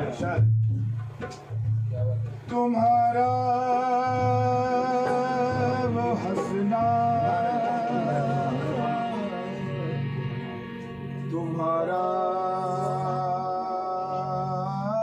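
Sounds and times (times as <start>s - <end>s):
hand drum beat: 0.0s - 8.9s
harmonium: 2.5s - 15.0s
men singing: 2.5s - 15.0s.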